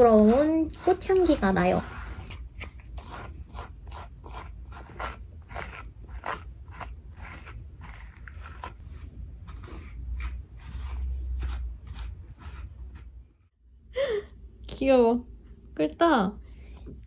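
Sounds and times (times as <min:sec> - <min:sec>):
brush scratching through dog fur: 0:00.0 - 0:13.2.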